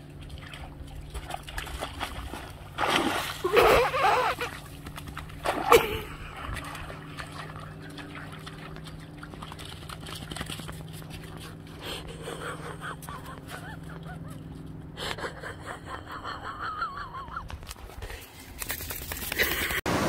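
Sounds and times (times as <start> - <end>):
dog paws splashing slush: 0.0 - 14.7.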